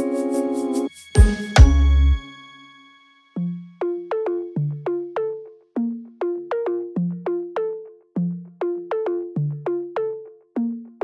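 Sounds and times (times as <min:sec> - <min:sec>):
light electronic tune with bass: 0:00.0 - 0:05.2.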